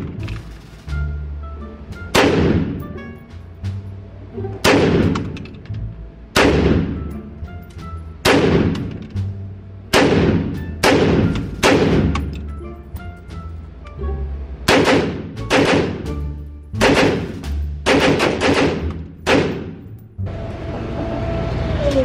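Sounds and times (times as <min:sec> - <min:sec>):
rifle shots echoing: 0:02.1 - 0:02.8, 0:04.6 - 0:05.4, 0:06.4 - 0:07.1, 0:08.2 - 0:09.1, 0:09.9 - 0:12.3, 0:14.7 - 0:16.1, 0:16.8 - 0:20.0.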